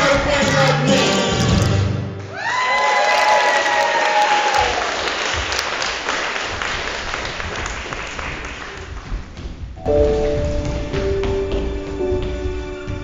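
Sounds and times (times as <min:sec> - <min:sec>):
recorded music: 0:00.0 - 0:02.3, 0:09.8 - 0:13.0
applause: 0:02.2 - 0:09.0.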